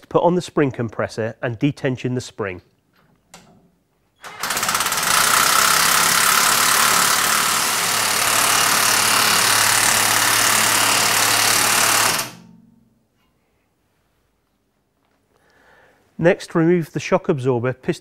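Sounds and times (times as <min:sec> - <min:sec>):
handheld power tool running: 0:04.2 - 0:12.5.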